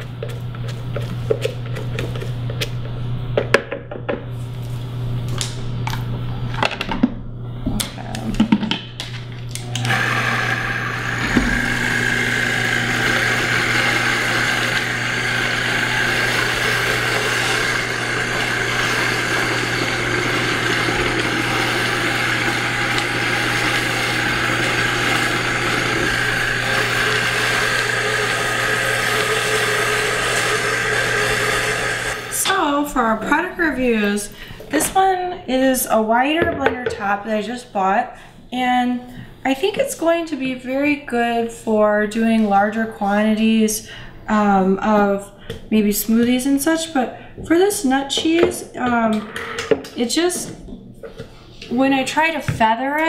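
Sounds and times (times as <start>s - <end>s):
blender running: 9.5s - 32.8s.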